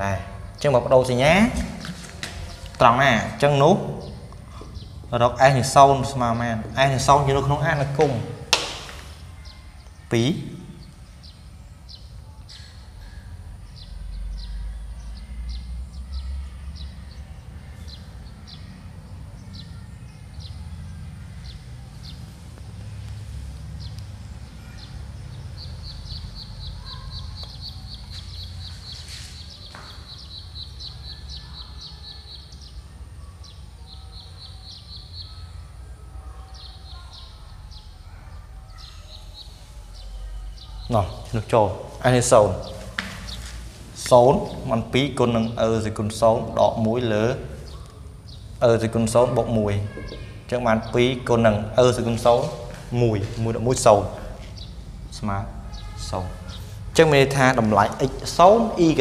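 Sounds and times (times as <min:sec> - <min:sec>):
small birds chirping: 0:00.0 - 0:59.0
bird trill: 0:02.4 - 0:22.3, 0:23.8 - 0:43.6, 0:55.6 - 0:57.4.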